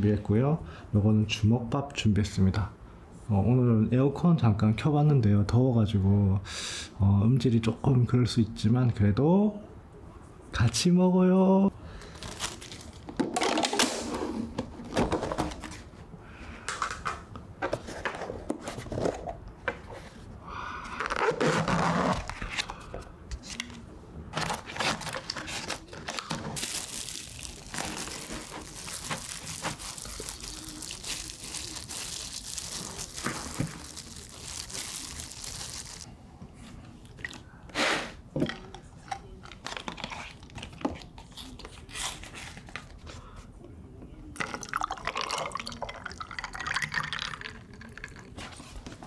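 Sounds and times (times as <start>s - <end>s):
cling film crinkling and tearing: 12.0s - 13.0s, 24.4s - 36.1s
plastic glove rustling: 12.0s - 13.1s, 24.4s - 36.1s.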